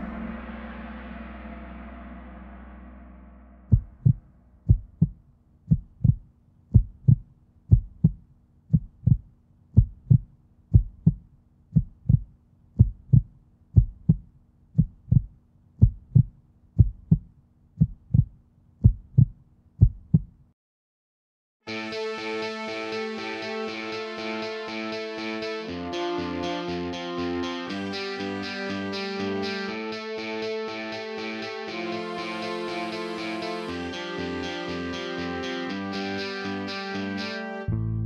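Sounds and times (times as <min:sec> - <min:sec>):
low steady hum: 0:00.0 - 0:09.2
heartbeat double thump: 0:03.7 - 0:20.4
musical note: 0:21.7 - 0:38.0.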